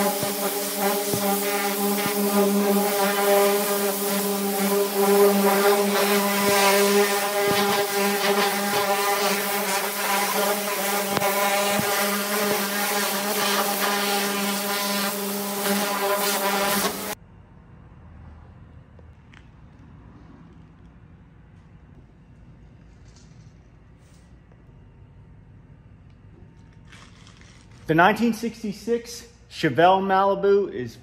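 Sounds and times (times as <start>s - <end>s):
pressure washer humming: 0.0s - 17.2s.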